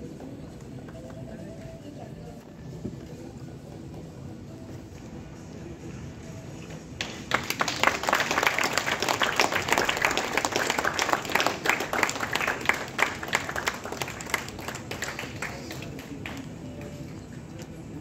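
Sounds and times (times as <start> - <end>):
audience applauding: 7.0 - 17.0.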